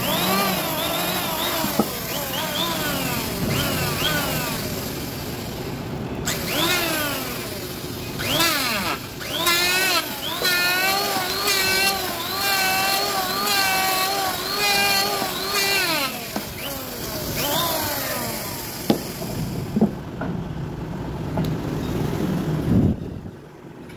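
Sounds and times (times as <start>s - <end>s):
electric hand planer motor whine: 0.0s - 5.1s, 6.3s - 19.3s
planer shaving wood: 0.0s - 5.5s, 6.3s - 19.4s.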